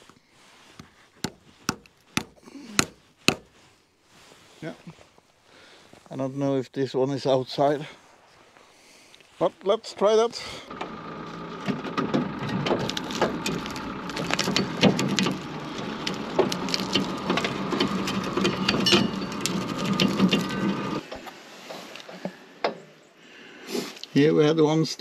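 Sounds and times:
bandsaw mill cutting log: 0.8 - 3.6, 10.7 - 21.0.

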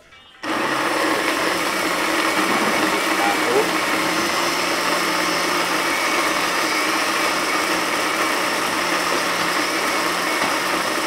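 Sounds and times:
blender running: 0.4 - 11.0.

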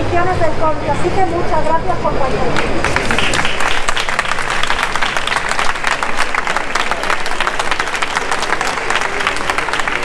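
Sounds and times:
crowd applauding: 2.6 - 10.0.

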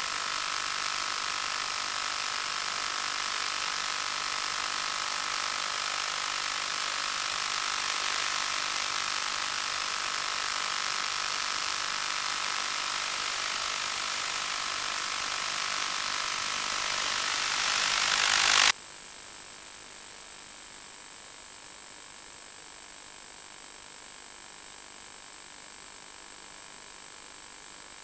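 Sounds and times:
static hiss: 0.0 - 18.7
thin whine: 0.0 - 18.7.

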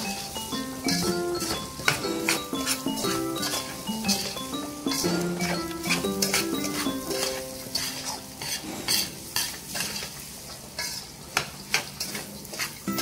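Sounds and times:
rice sizzling in butter: 0.0 - 13.0
metal spoon scraping steel pan: 1.9 - 10.2, 10.8 - 11.1.

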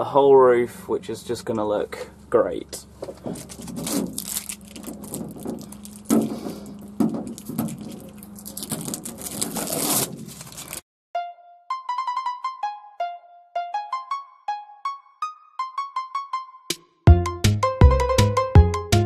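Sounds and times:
hands rustling and scraping on metal: 3.0 - 10.8.

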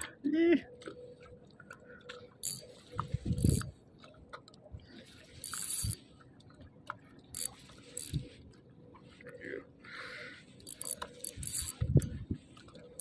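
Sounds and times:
rod and reel knocking: 2.0 - 4.5, 5.4 - 8.5, 10.4 - 13.0
fishing reel winding: 2.4 - 2.6, 3.3 - 3.7, 5.4 - 6.0, 7.3 - 8.2, 10.6 - 12.1.

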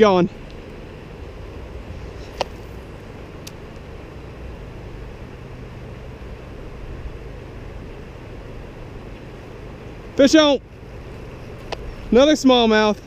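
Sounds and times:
river current rushing: 0.0 - 13.0.

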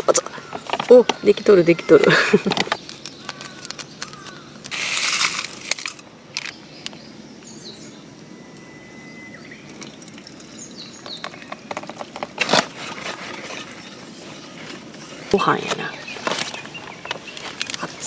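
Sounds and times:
plastic packet crackling: 2.5 - 6.6
faint bird chirps: 6.5 - 11.6
hot water pouring into metal cup: 9.7 - 10.8.

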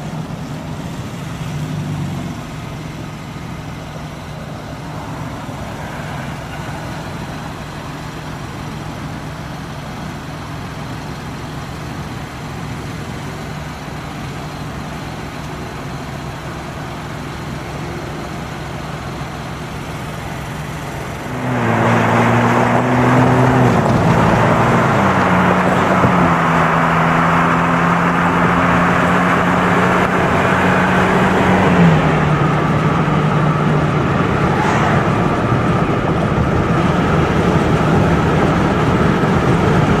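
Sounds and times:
car engine idling: 0.0 - 40.0
road and wind noise: 0.0 - 40.0
engine tones dropping in pitch: 17.6 - 40.0.

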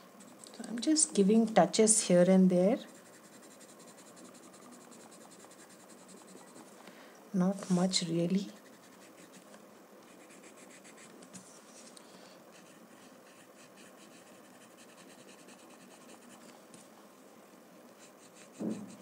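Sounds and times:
chalk pencil scratching on paper: 2.8 - 6.8, 7.5 - 9.5, 10.1 - 11.2, 12.6 - 16.5, 18.0 - 19.0.

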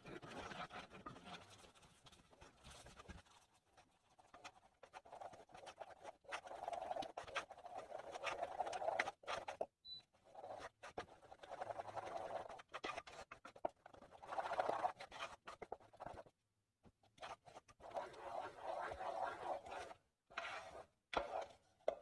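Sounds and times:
wooden spoon stirring in saucepan: 0.0 - 22.0.

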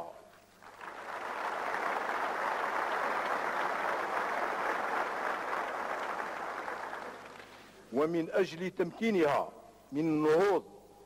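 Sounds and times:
audience applauding: 0.6 - 7.7.

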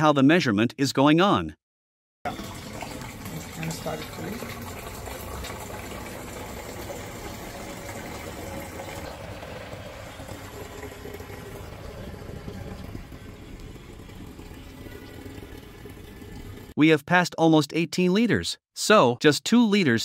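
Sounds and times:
water pouring into plastic jar: 2.3 - 16.7.

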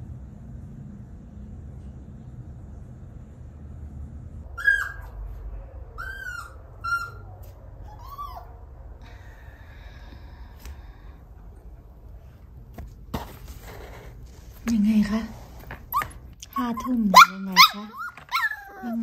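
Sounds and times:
low background hum: 0.0 - 19.0
puppy whining: 4.5 - 8.7, 15.9 - 19.0.

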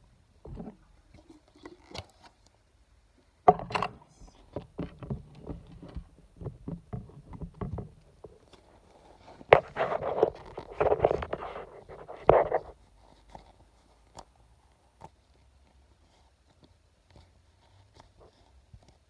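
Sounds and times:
plastic tub clicks and knocks: 3.5 - 8.4.

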